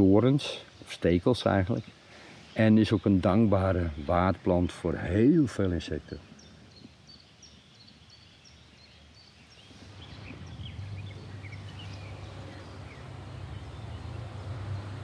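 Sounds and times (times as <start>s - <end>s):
small birds chirping: 0.0s - 15.0s
low steady hum: 9.7s - 15.0s.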